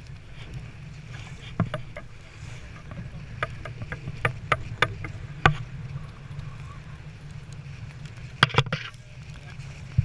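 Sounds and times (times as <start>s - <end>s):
wind and water rushing along hull: 0.0s - 10.0s
sharp clicks and knocks: 1.4s - 5.7s, 8.4s - 9.0s.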